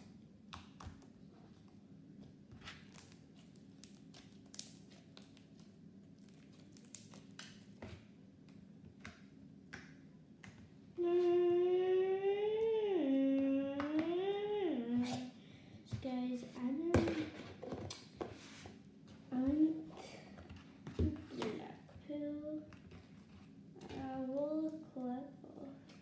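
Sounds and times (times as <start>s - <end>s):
slime clicking and crackling: 3.0s - 7.7s
child humming: 11.0s - 15.4s.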